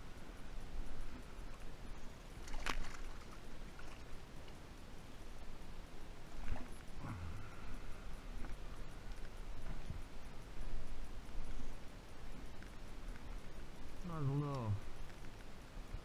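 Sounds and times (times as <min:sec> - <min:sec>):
water splashing: 0:02.4 - 0:04.2.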